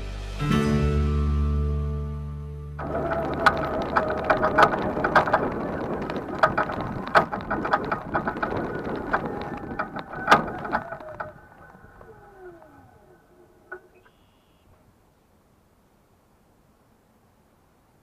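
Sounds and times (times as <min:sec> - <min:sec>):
wheels and frame rattling: 0:02.8 - 0:14.4
mobility scooter motor whine: 0:02.8 - 0:14.5.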